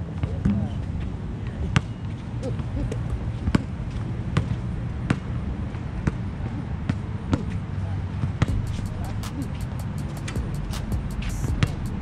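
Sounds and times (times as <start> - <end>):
low rumble: 8.5 - 12.0.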